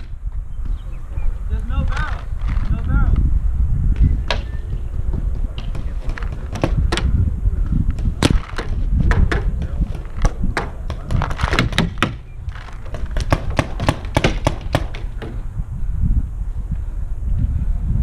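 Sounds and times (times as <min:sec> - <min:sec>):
wind rumble on microphone: 0:00.0 - 0:18.0
paintball markers popping: 0:07.9 - 0:15.4.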